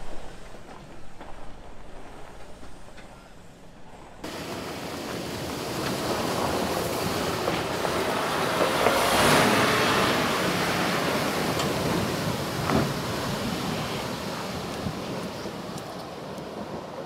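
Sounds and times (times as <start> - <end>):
tyres rolling over gravel: 4.2 - 17.0.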